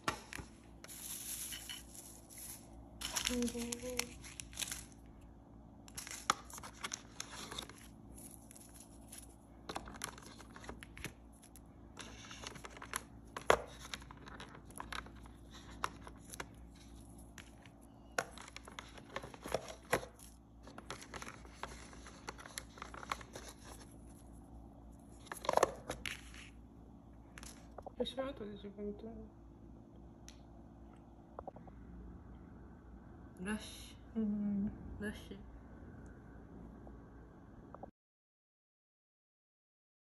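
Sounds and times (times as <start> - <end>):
plastic wrap crinkling and tearing: 0.8 - 5.1, 5.9 - 24.3.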